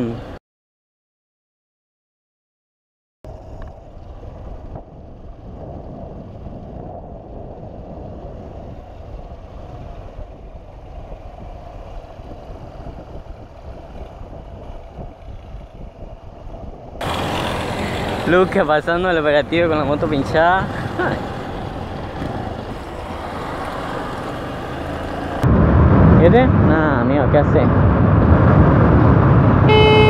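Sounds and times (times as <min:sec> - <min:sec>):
motorcycle engine running: 0:03.3 - 0:25.4
wind rumbling on microphone: 0:03.3 - 0:30.0.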